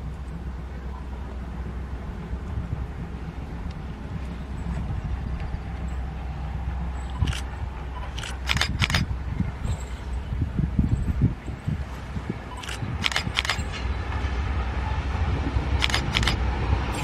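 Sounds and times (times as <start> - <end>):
distant locomotive rumble: 0.0 - 17.0.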